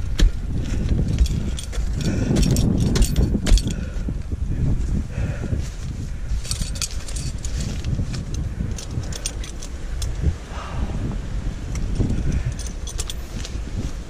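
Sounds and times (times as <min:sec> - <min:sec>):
climbing hardware clinking: 0:00.0 - 0:04.2, 0:06.2 - 0:10.3, 0:11.7 - 0:14.0
low rumble of movement: 0:00.0 - 0:14.0.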